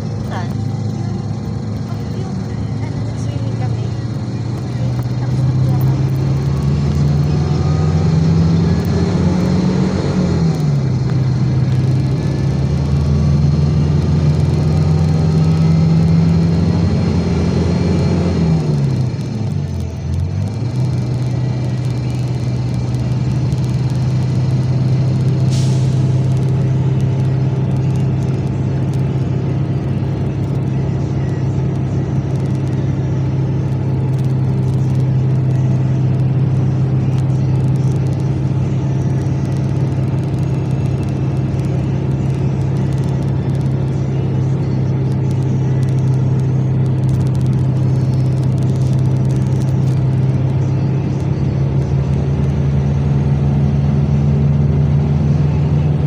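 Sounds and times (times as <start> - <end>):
road noise: 0.0 - 56.0
vehicle engine drone: 0.0 - 56.0.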